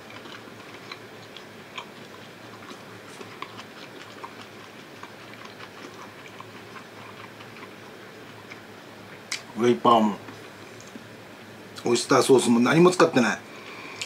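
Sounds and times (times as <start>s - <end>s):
person chewing food: 0.0s - 9.5s
low room hum: 0.0s - 14.0s.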